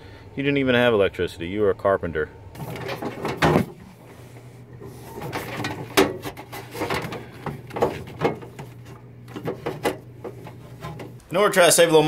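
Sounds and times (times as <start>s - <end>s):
steady low hum: 0.0s - 12.0s
wire rustling and scraping through cables: 2.6s - 11.3s.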